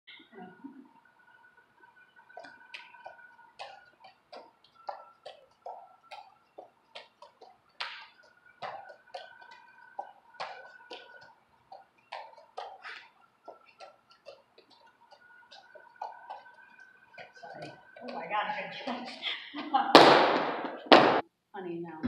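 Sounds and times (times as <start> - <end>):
juggling clubs clacking into hands: 2.2 - 19.1.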